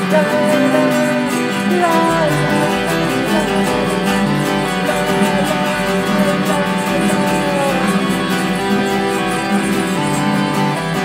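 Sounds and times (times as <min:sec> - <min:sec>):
gliding melody line: 0:00.0 - 0:11.0
guitar strumming: 0:00.0 - 0:11.0
sustained chords: 0:00.0 - 0:11.0.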